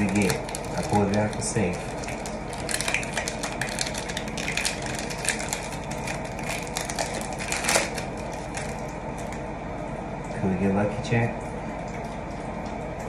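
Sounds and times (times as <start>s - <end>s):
foil wrapper crinkling and tearing: 0.0s - 9.4s.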